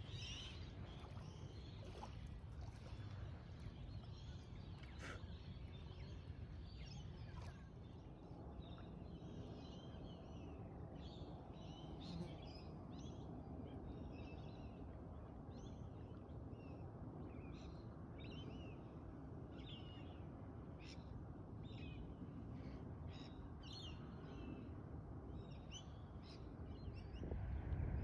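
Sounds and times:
low background rumble: 25.3 - 28.0.

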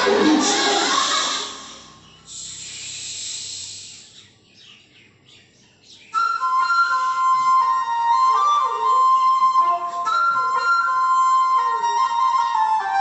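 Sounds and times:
music with flute-like melody: 6.1 - 13.0.

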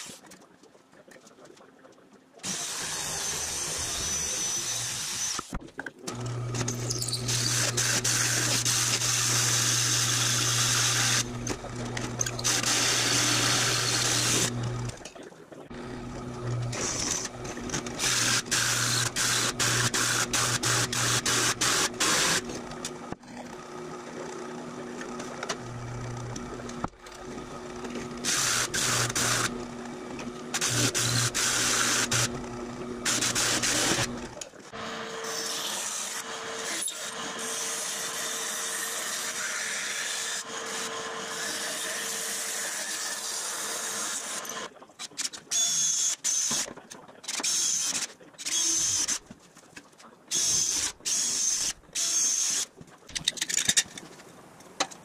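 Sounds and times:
drill press motor humming: 2.4 - 15.0, 15.7 - 38.3
electric sheet-metal shear: 2.4 - 15.0, 16.4 - 22.6, 28.2 - 29.6, 30.4 - 44.7
hole saw cutting metal sheet: 6.6 - 11.6, 12.2 - 14.7, 16.6 - 22.6, 28.2 - 29.6, 30.5 - 32.4, 33.0 - 34.2.

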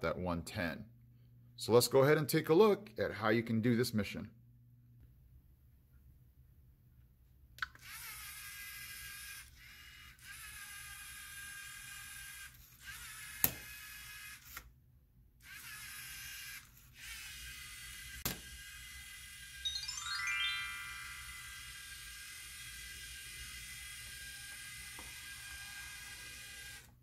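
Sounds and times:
robot motors whining: 21.4 - 26.9.

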